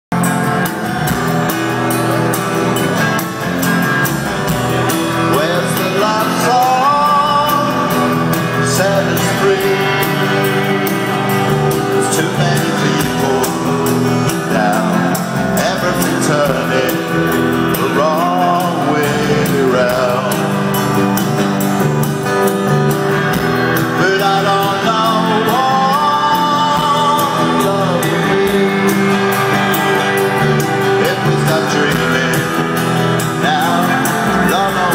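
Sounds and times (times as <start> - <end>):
drums: 0.1 - 34.9
electric guitars: 0.1 - 34.9
man singing: 4.9 - 21.1, 23.6 - 34.9.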